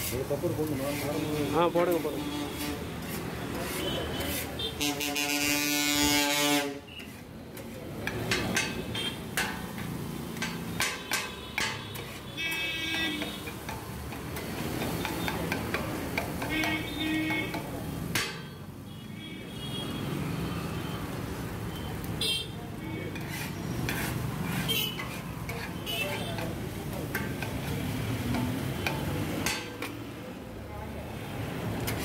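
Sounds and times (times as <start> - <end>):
metal blades clanging on griddle: 7.6 - 18.6, 23.1 - 30.0.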